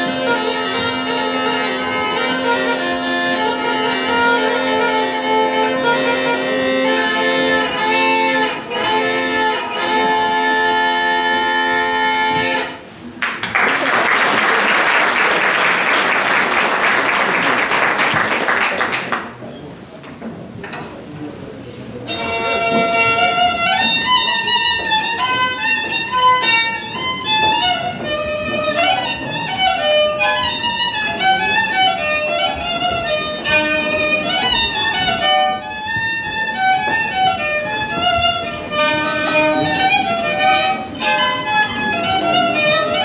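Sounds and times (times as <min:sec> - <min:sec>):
high-pitched folk instrument melody: 0:00.0 - 0:13.1, 0:21.9 - 0:43.0.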